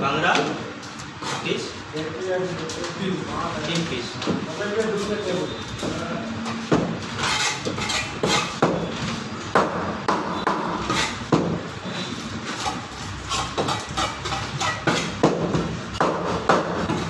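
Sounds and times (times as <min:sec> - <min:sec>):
cleaver chopping fish on block: 0:14.7 - 0:17.0.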